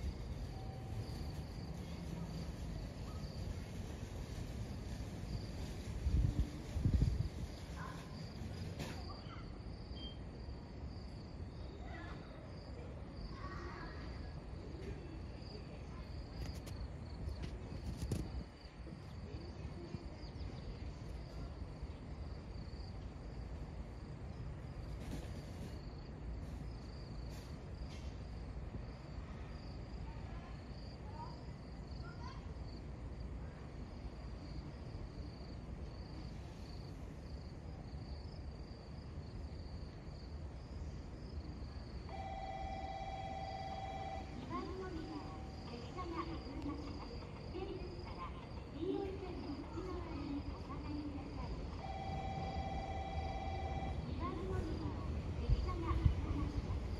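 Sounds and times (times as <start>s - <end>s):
insects chirring: 0.0s - 56.9s
low outdoor rumble: 43.2s - 56.9s.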